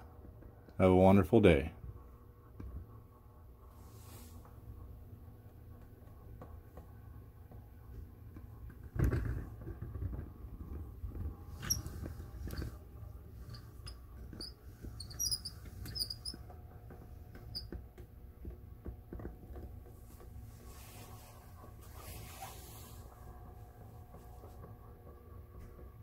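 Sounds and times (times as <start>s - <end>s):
turntable low rumble: 1.4s - 26.0s
small high squeaks: 11.5s - 12.8s, 13.4s - 16.6s, 17.3s - 17.8s.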